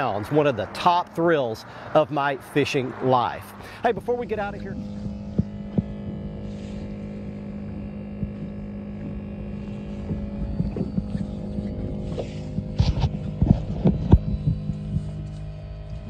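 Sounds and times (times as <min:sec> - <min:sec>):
boat motor hum: 0:00.0 - 0:16.0
gear knocking and clunking: 0:03.9 - 0:16.0.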